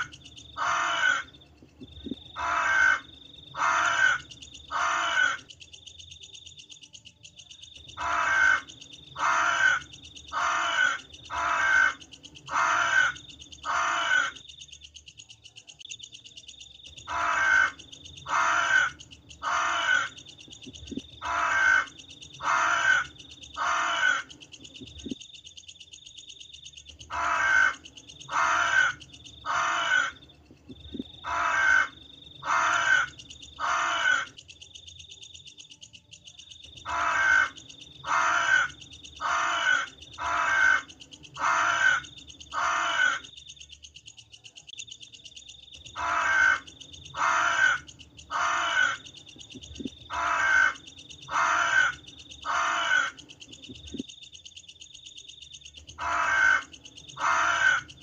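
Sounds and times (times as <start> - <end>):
crows cawing: 0.0 - 1.4, 2.0 - 5.5, 7.9 - 14.4, 17.0 - 24.4, 27.0 - 30.3, 31.2 - 34.4, 36.8 - 43.3, 45.9 - 49.1, 50.1 - 53.3, 55.9 - 58.0.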